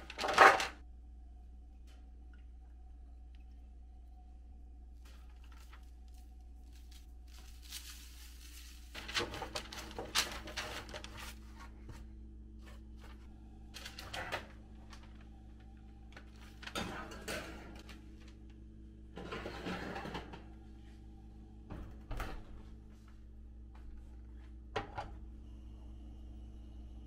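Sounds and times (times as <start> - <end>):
steady low hum: 0.0 - 27.0
parchment paper crinkling: 5.0 - 12.0.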